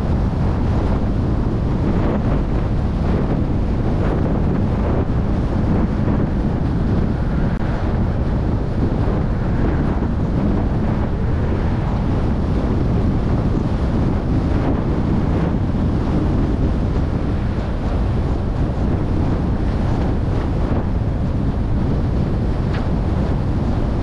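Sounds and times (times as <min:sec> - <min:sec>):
road noise rumble: 0:00.0 - 0:24.0
wind buffeting microphone: 0:00.0 - 0:24.0.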